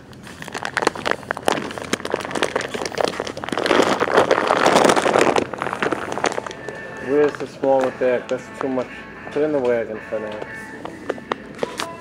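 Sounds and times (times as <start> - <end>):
plastic bag crinkling: 0.1 - 7.9.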